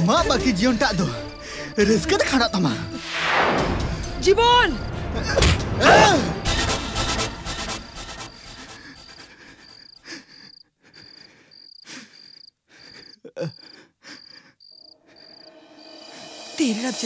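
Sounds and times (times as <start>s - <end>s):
cricket chirping: 3.9s - 5.4s, 7.2s - 16.6s.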